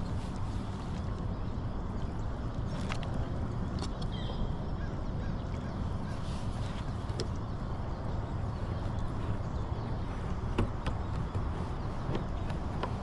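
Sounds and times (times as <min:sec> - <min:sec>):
steady low rumble: 0:00.0 - 0:13.0
light clicks of mooring clamp: 0:02.0 - 0:04.4, 0:06.6 - 0:07.5, 0:10.2 - 0:13.0.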